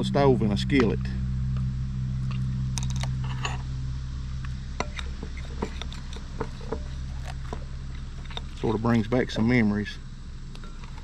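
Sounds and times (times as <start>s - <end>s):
steady low hum: 0.0s - 11.0s
metal spoon scraping glass bowl: 4.8s - 7.2s.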